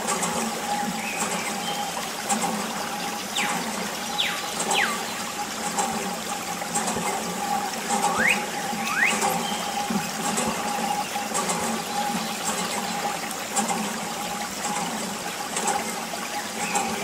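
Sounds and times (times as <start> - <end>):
water pump humming: 0.0 - 17.0
water trickling from tube: 0.0 - 17.0
whistling glides: 3.4 - 5.1, 8.0 - 12.4.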